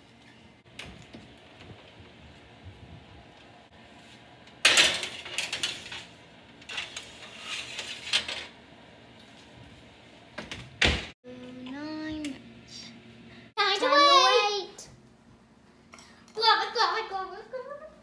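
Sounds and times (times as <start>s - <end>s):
baking sheet scraping on oven rack: 4.9s - 8.5s.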